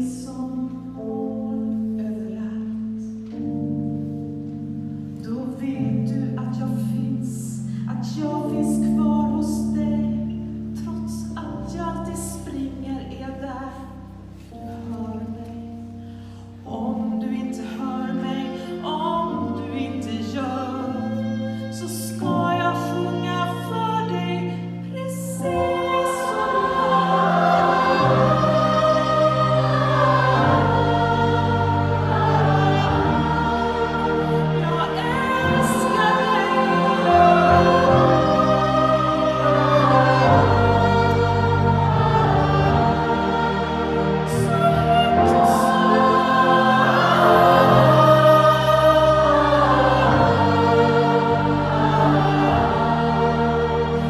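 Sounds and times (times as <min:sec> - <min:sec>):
choir singing: 0:16.7 - 0:54.0
held instrumental chords: 0:24.5 - 0:54.0.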